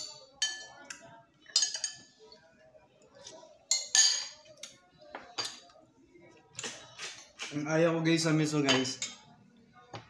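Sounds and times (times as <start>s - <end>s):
metal spoon clinking on bowl: 0.0s - 2.1s, 3.7s - 4.5s.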